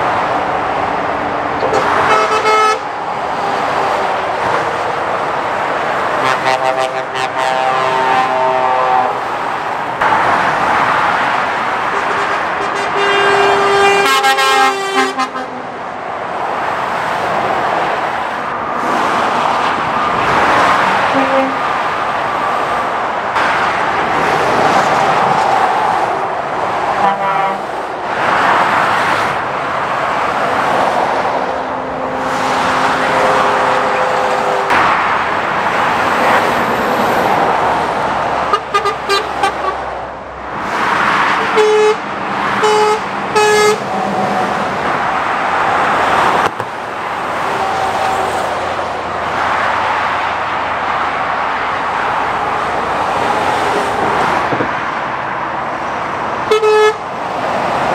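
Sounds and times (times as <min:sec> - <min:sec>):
motorway traffic rushing past: 0:00.0 - 0:57.9
vehicle horn tooting: 0:01.6 - 0:02.9, 0:06.2 - 0:09.2, 0:11.9 - 0:15.6, 0:21.1 - 0:21.6, 0:27.0 - 0:27.6, 0:33.0 - 0:34.7, 0:38.5 - 0:39.8, 0:41.5 - 0:42.0, 0:42.6 - 0:43.8, 0:56.5 - 0:57.0.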